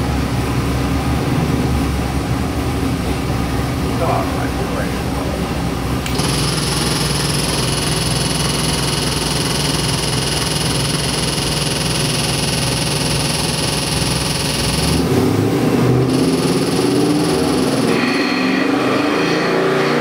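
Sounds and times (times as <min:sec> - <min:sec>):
engine idling: 0:02.2 - 0:18.0
high-pitched whine: 0:06.1 - 0:20.0.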